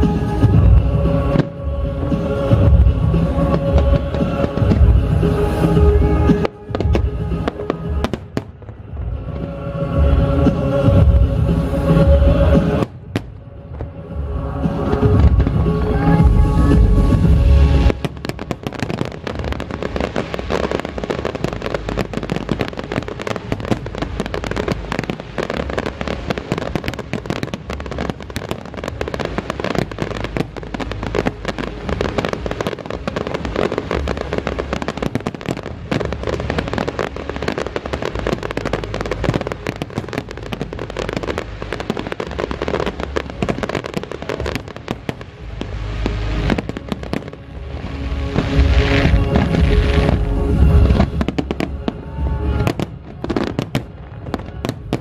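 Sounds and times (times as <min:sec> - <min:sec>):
fireworks crackling pops: 0:00.0 - 0:14.0, 0:14.6 - 0:55.0.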